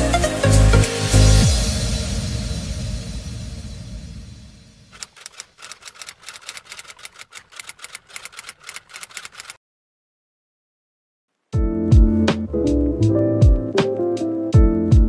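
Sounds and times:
typewriter key clacks: 5.0s - 9.6s.

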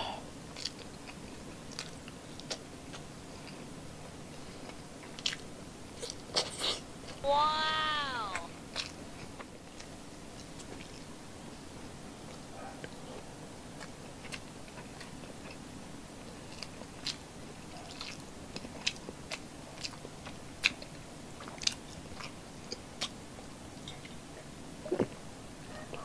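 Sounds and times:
person chewing: 0.5s - 3.7s, 4.6s - 11.1s, 13.8s - 15.6s, 16.2s - 17.2s, 17.9s - 23.2s.

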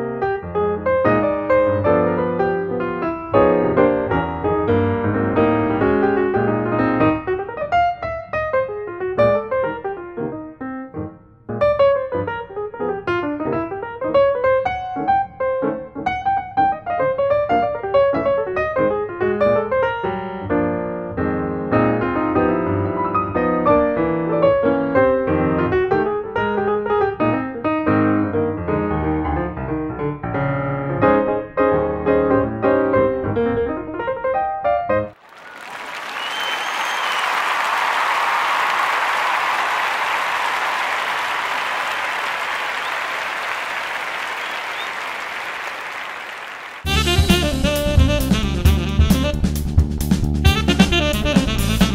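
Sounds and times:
piano music: 0.0s - 35.2s, 46.8s - 49.5s
crowd applause: 35.2s - 47.2s.

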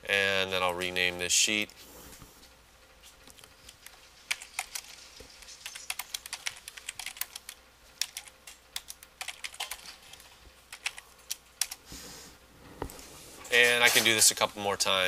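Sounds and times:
computer keyboard typing: 3.3s - 11.8s.

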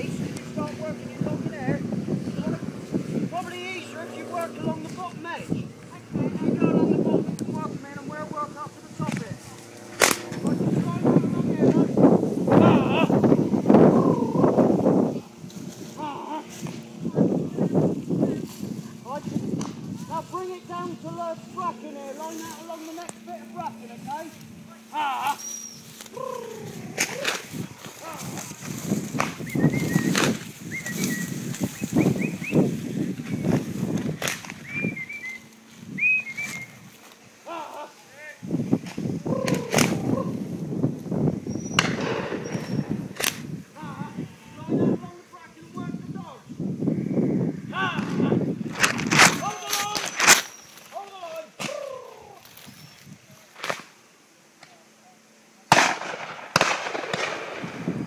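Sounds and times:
rustling of vegetation: 0.0s - 58.0s
stems snapping: 9.9s - 10.6s, 19.6s - 19.8s, 22.5s - 23.7s, 25.9s - 32.6s, 33.9s - 35.6s, 38.8s - 40.0s, 43.1s - 43.5s, 48.7s - 52.7s, 53.5s - 53.9s
high bird-like chirps: 25.4s - 26.0s, 29.4s - 33.6s, 34.6s - 36.8s, 41.4s - 43.0s, 49.4s - 50.9s
shotgun shots with echo: 41.8s - 43.3s, 55.7s - 57.8s.

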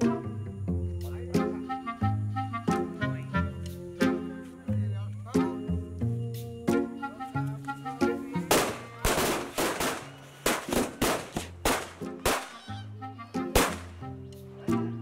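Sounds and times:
background music: 0.0s - 15.0s
firecrackers banging: 8.4s - 12.6s, 13.6s - 14.0s.

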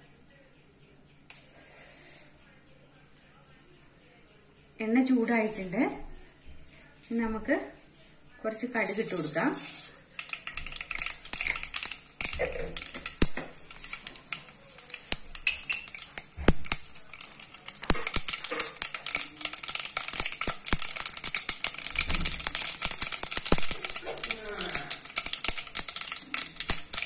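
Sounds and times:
mustard seeds popping: 8.6s - 27.0s
oil sizzling: 8.6s - 27.0s.

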